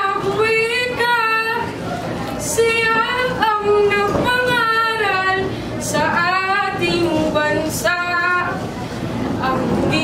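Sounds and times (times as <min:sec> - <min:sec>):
child singing: 0:00.0 - 0:01.7, 0:02.4 - 0:08.6.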